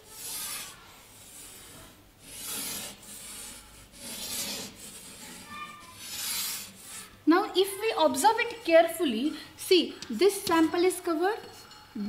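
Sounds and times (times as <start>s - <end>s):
chalk scraping on blackboard: 0.0s - 7.2s.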